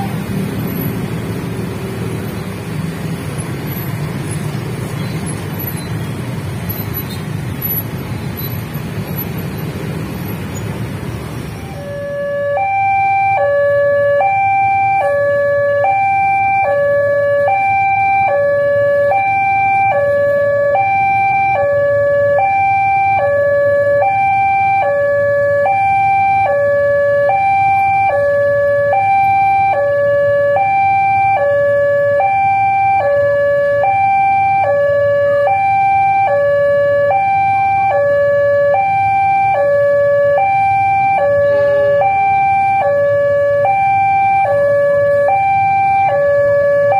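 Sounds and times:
traffic rumble: 0.0 - 46.9
level crossing two-tone alarm: 11.6 - 46.9.

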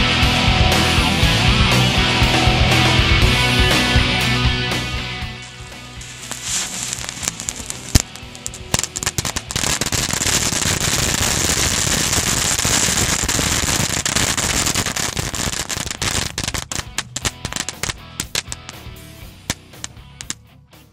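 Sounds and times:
firecrackers crackling: 4.8 - 20.4.

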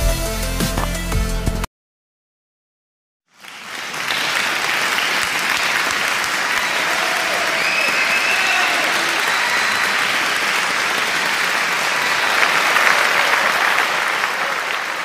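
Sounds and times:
crowd applauding: 3.3 - 15.0.

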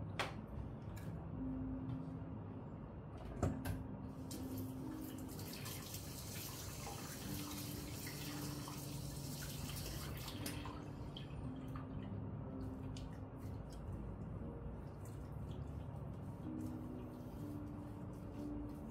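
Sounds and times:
tap water running into basin: 4.4 - 11.7.

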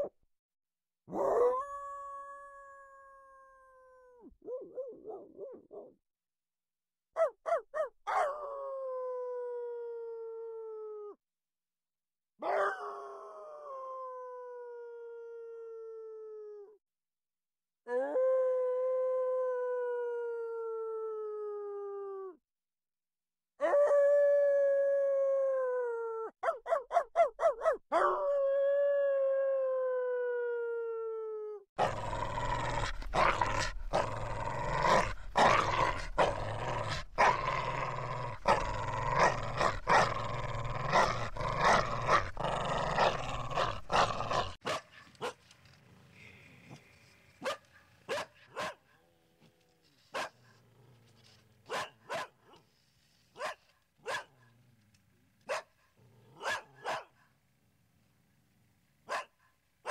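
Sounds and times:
dog barking: 7.2 - 8.3, 12.4 - 12.8, 26.4 - 28.2, 43.6 - 45.4, 47.4 - 49.0, 51.7 - 52.6, 53.4 - 54.4, 55.5 - 55.8, 56.4 - 57.2, 59.1 - 59.9
dog yelping: 7.2 - 8.3
dog howling: 27.9 - 44.6.

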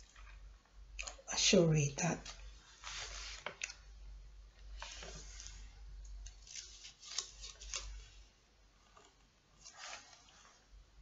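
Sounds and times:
book pages rustling: 2.3 - 3.7, 4.7 - 8.3, 8.9 - 10.6.

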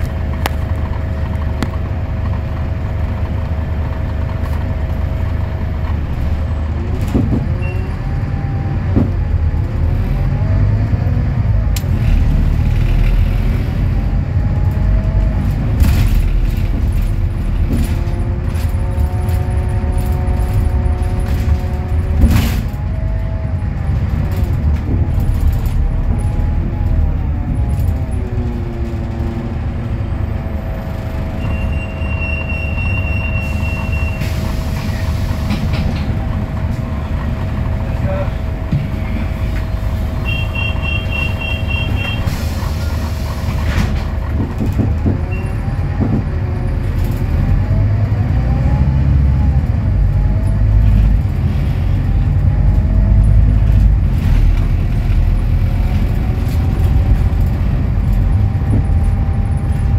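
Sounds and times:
bus body rattles and knocks: 0.0 - 59.9
bus engine rumbling: 0.0 - 59.9.

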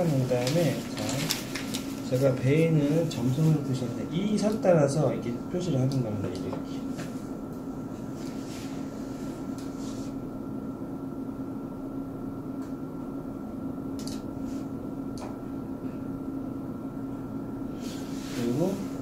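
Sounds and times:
electrical equipment hum: 0.0 - 19.0.

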